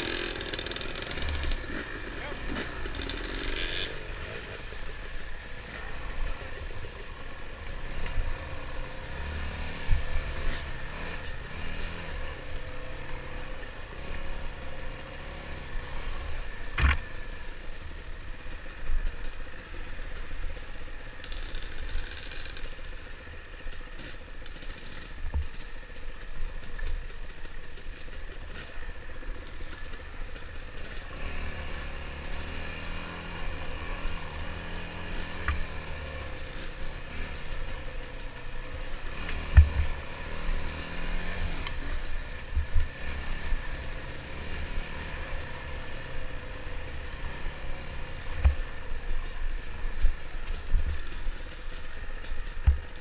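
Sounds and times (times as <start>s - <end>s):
dirt bike engine revving: 0.0s - 17.4s, 28.5s - 49.2s.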